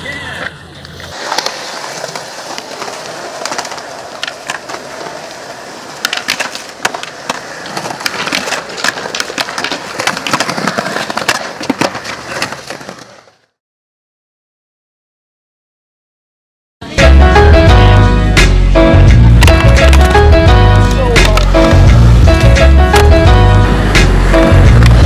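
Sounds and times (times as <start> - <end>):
skateboards rolling on concrete: 0.0 - 13.6, 16.9 - 25.0
skateboard clacks: 0.8 - 13.3, 19.1 - 25.0.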